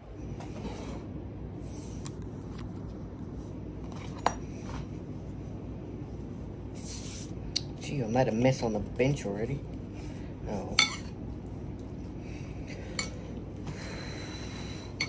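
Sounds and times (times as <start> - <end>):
low room hum: 0.0 - 15.0
metal fork clinking on ceramic bowl: 10.8 - 11.1.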